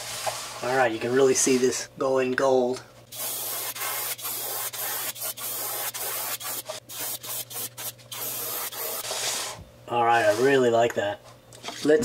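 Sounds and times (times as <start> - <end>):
airbrush spraying hiss: 3.1 - 9.4.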